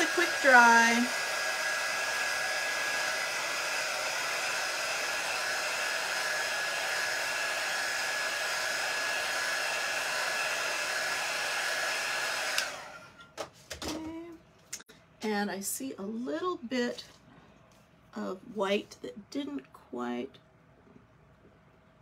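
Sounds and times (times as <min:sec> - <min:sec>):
handheld dryer blowing with whine: 0:00.0 - 0:13.2.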